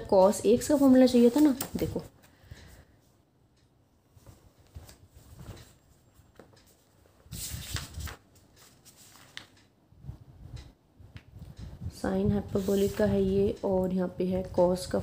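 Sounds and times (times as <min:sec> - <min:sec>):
book pages turning: 0:07.4 - 0:09.6.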